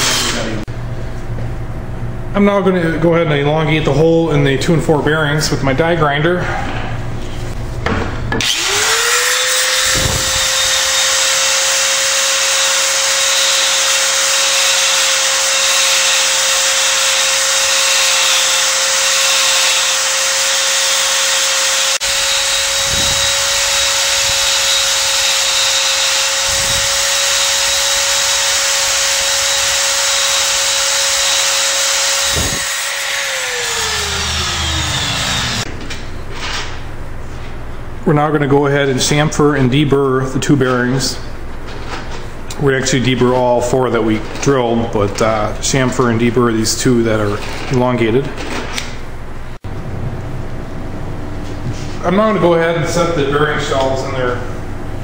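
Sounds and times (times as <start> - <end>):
die grinder grinding: 0.0 - 0.6, 8.4 - 35.7.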